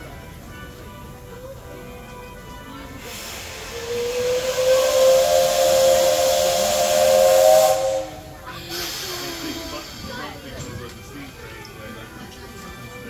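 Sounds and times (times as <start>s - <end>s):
rush of steam: 2.9s - 10.9s
steam whistle blast: 3.0s - 9.0s.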